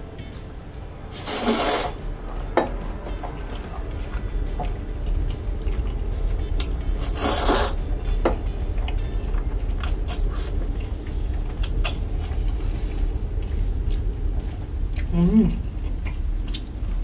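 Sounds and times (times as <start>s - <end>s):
person slurping noodles: 1.1s - 2.0s, 7.0s - 7.8s
chewing and mouth smacks: 11.5s - 12.3s, 13.8s - 15.2s, 15.8s - 17.0s.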